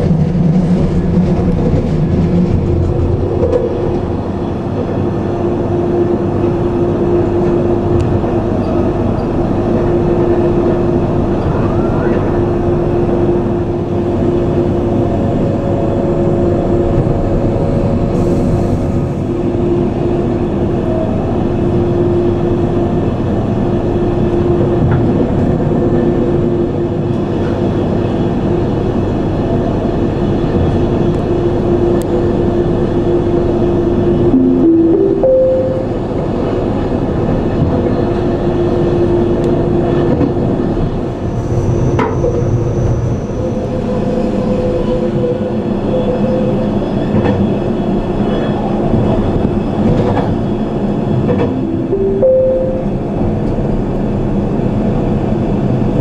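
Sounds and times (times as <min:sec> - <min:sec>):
train rolling on track: 0:00.0 - 0:56.0
steady humming tone: 0:09.7 - 0:20.8, 0:33.2 - 0:36.8, 0:51.1 - 0:53.8
short rising tone: 0:34.3 - 0:36.4.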